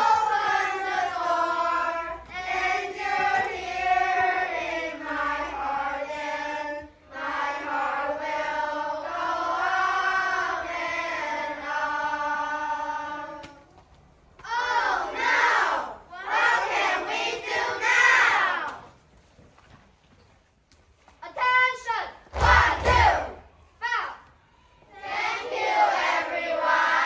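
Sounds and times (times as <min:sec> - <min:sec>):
children's voices in unison: 0:14.4 - 0:18.8, 0:24.9 - 0:27.0.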